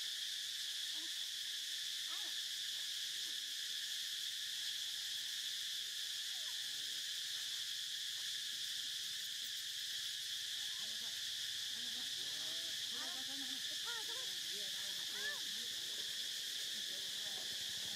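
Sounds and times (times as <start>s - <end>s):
insects chirring: 0.0s - 17.9s
faint pitched calls: 2.1s - 2.4s, 12.9s - 17.9s.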